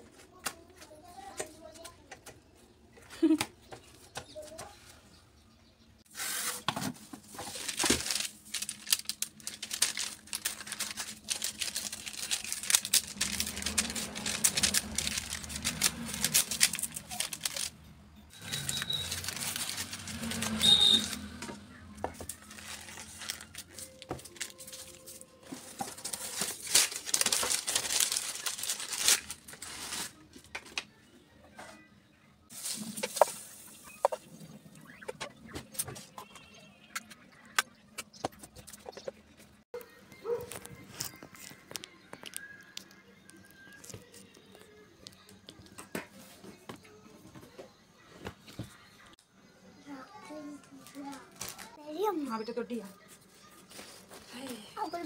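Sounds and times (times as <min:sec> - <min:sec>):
paper rustling and tearing: 0:06.1 - 0:21.4, 0:22.1 - 0:30.3.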